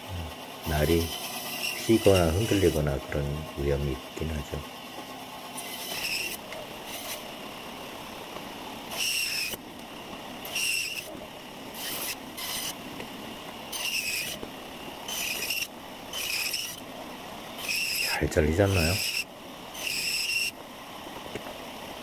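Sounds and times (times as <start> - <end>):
band saw cutting wood: 0.0 - 4.6, 5.5 - 7.4, 8.9 - 9.6, 10.4 - 12.8, 13.7 - 14.4, 15.0 - 16.8, 17.6 - 20.6.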